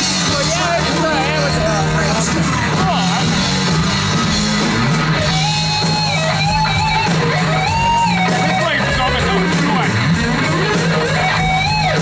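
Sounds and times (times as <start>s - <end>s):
bass guitar: 0.0s - 12.0s
distorted electric guitar lead: 0.0s - 12.0s
drums and cymbals: 0.0s - 12.0s.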